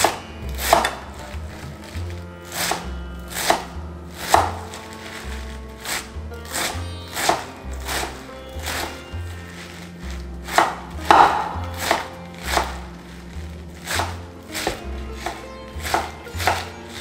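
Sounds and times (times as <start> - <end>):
knife chopping on wooden board: 0.0 - 1.9, 4.3 - 4.8, 5.8 - 9.0, 10.5 - 12.9, 13.9 - 16.7
background music with bass line: 0.0 - 17.0.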